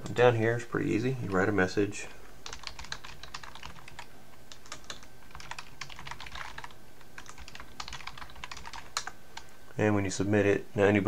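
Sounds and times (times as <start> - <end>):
typing on computer keyboard: 2.4 - 9.5.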